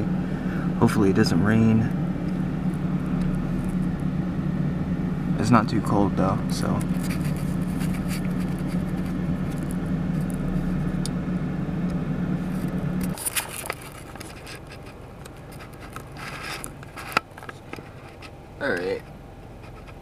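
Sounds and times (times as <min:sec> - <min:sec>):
car engine hum: 0:00.0 - 0:20.0
scraping and rustling handling: 0:06.5 - 0:10.8, 0:12.5 - 0:20.0.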